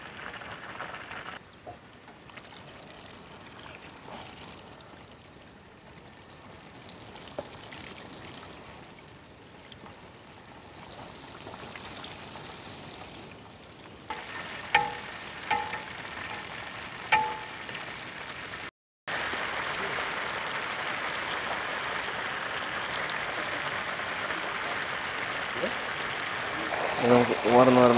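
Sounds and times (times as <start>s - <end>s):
hot oil sizzling: 0.0s - 27.9s
metal skimmer clinking on pan: 14.1s - 16.6s, 17.2s - 17.6s.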